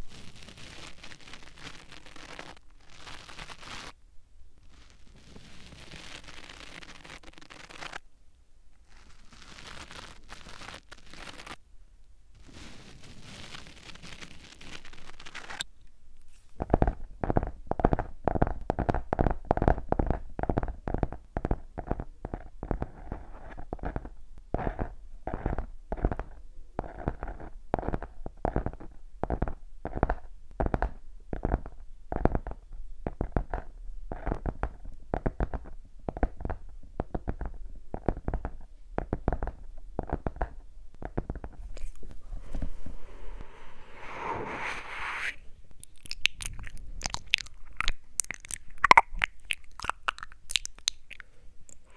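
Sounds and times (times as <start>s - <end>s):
soft rustling brushes: 41.5s - 48.0s.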